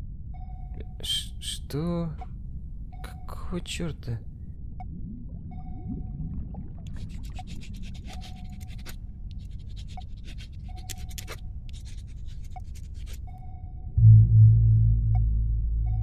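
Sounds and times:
low hum: 0:00.0 - 0:16.0
pencil scratching on paper: 0:07.0 - 0:13.4.

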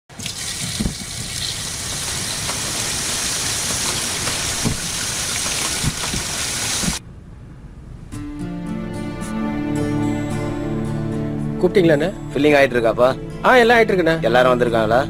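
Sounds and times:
water running from tap: 0:00.1 - 0:07.0
dull knocks: 0:03.6 - 0:07.0.

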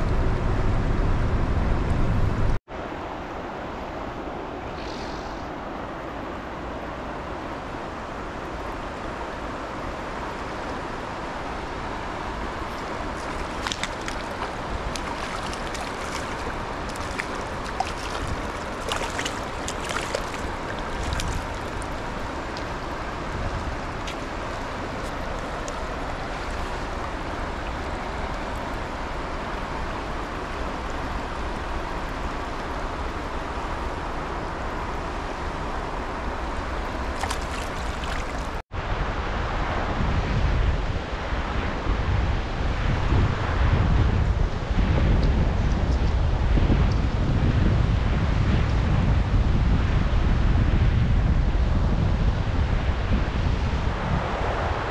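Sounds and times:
wind rumble on microphone: 0:00.0 - 0:54.9
river water rushing over rocks: 0:05.6 - 0:38.6
light clicks and splashes: 0:12.6 - 0:33.0, 0:37.0 - 0:38.6.

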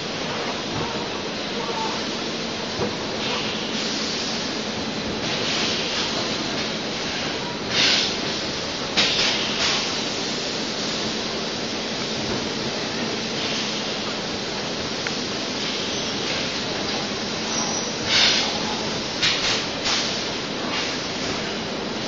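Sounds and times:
compressed air hisses: 0:03.2 - 0:04.6, 0:06.9 - 0:12.2, 0:13.3 - 0:21.6.

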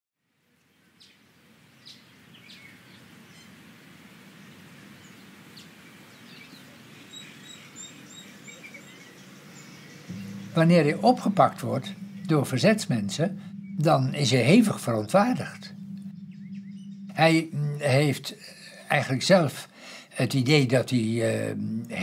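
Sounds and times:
bird chirps: 0:01.8 - 0:03.6, 0:05.0 - 0:20.1
short high bird notes: 0:10.1 - 0:19.0
faint low rumble: 0:10.1 - 0:19.9.

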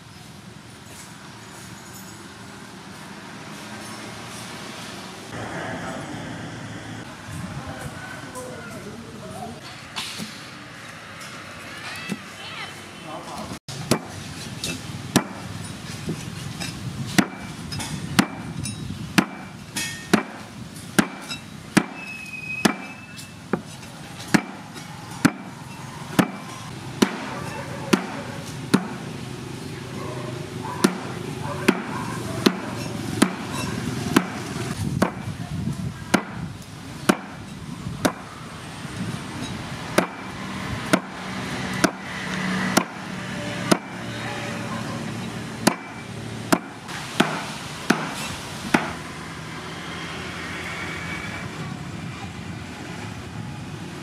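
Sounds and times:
cleaver chopping on wooden board: 0:17.2 - 0:17.5, 0:19.2 - 0:19.5, 0:21.0 - 0:22.0, 0:26.2 - 0:26.4, 0:31.7 - 0:34.4, 0:35.0 - 0:35.2, 0:36.1 - 0:36.4, 0:37.1 - 0:37.4, 0:40.0 - 0:40.2, 0:40.9 - 0:41.1, 0:41.8 - 0:43.0, 0:45.6 - 0:49.0.

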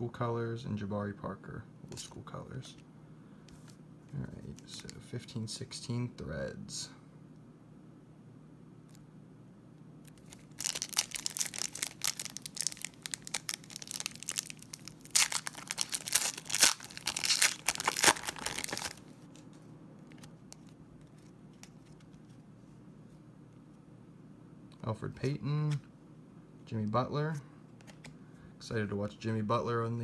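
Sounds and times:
foil wrapper tearing and crinkling: 0:10.1 - 0:19.1.

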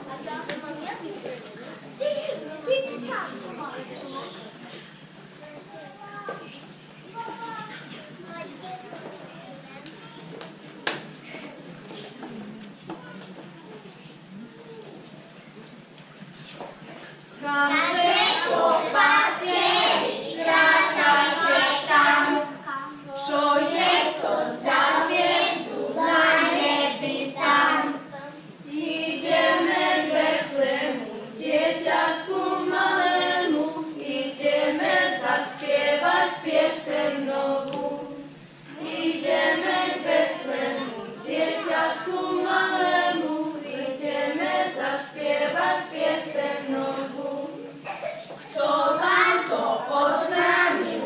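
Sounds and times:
children singing a carol: 0:17.4 - 0:28.1, 0:28.7 - 0:51.0.

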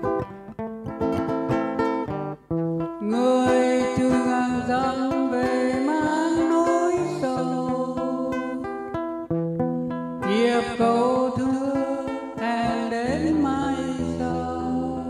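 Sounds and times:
fingerpicked acoustic guitar: 0:00.0 - 0:15.0
man singing into a microphone: 0:10.3 - 0:15.0.

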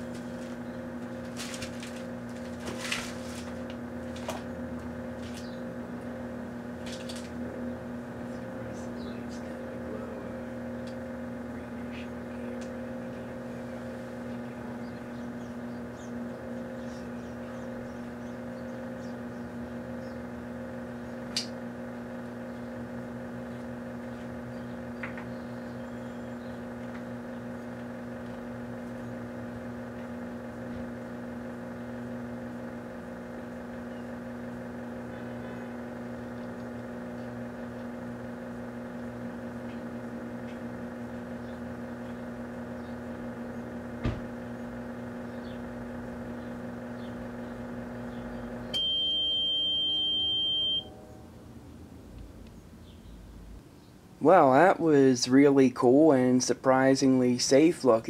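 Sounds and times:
microwave oven humming: 0:00.0 - 0:58.0
sharp click: 0:21.3 - 0:21.6.

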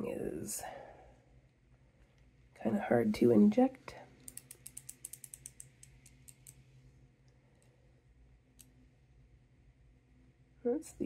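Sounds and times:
injection pen clicking: 0:04.2 - 0:06.6.

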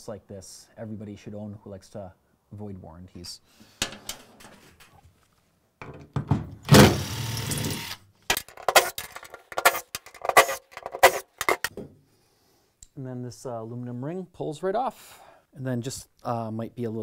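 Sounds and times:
sharp clicks and knocks: 0:05.8 - 0:11.9
impact driver running: 0:06.7 - 0:08.0.

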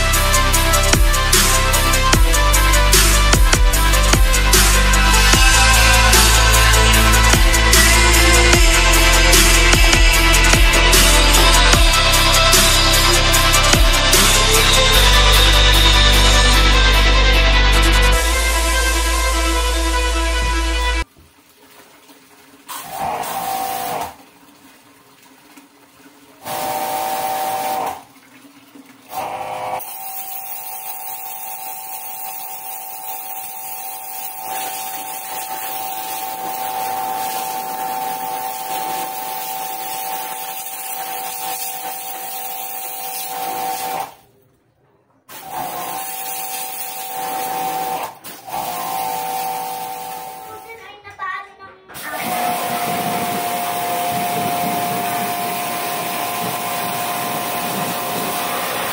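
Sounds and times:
pressure washer motor whine: 0:00.0 - 0:21.1, 0:22.7 - 0:24.2, 0:26.4 - 0:28.0, 0:29.1 - 0:44.2, 0:45.3 - 0:50.6, 0:52.0 - 0:58.9
water jet hissing on metal: 0:22.7 - 0:24.2, 0:26.4 - 0:28.0, 0:29.1 - 0:44.2, 0:45.3 - 0:50.5, 0:52.0 - 0:58.9.

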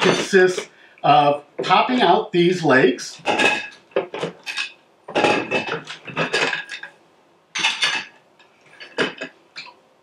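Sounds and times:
metal tubes clattering: 0:00.0 - 0:00.7, 0:03.2 - 0:09.7.

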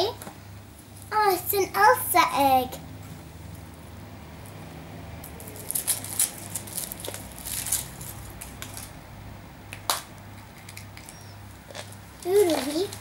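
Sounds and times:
low steady hum: 0:00.0 - 0:13.0
foil wrapper crinkling: 0:05.4 - 0:08.9.

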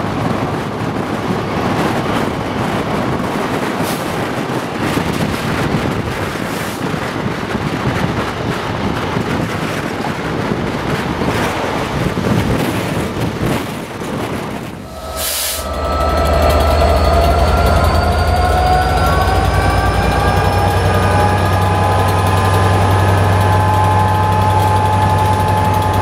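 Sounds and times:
train rumbling on track: 0:00.0 - 0:26.0
wind buffeting microphone: 0:00.0 - 0:26.0.

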